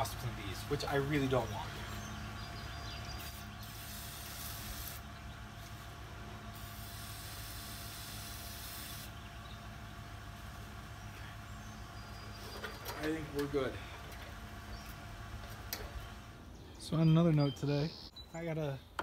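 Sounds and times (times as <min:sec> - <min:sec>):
aerosol can hissing: 0:06.6 - 0:09.1.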